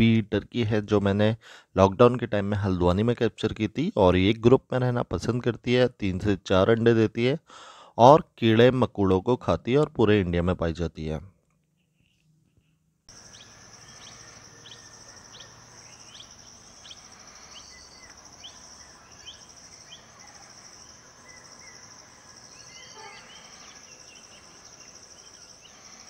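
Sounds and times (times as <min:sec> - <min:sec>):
birds twittering: 0:11.8 - 0:26.0
short rising bird chirps: 0:11.8 - 0:26.0
high insect drone: 0:13.1 - 0:26.0.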